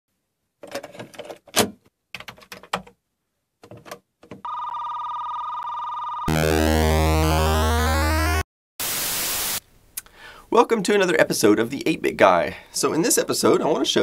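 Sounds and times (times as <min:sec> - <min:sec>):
loud noisy synthesizer music: 0:06.3 - 0:08.4
steady electronic tone: 0:06.3 - 0:09.6.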